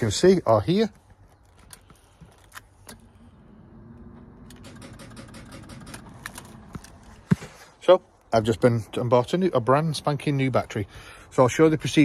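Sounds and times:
starter and engine rumble: 1.8s - 7.2s.

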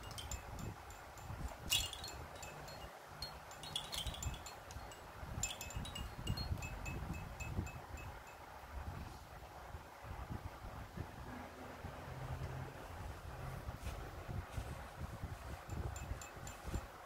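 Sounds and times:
plastic toys jingling and clinking: 0.0s - 6.8s.

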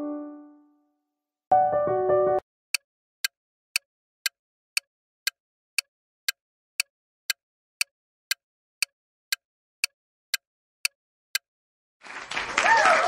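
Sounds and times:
timer ticking: 2.7s - 11.5s.

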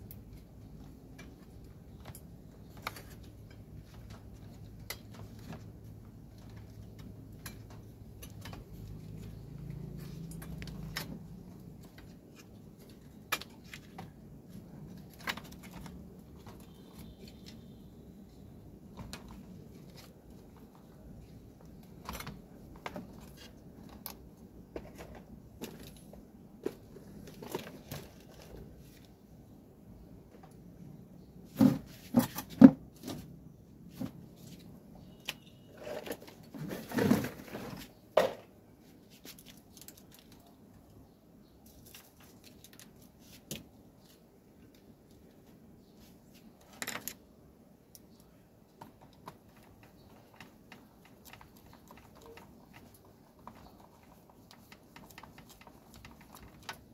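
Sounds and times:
plastic parts clicking: 47.9s - 56.9s.

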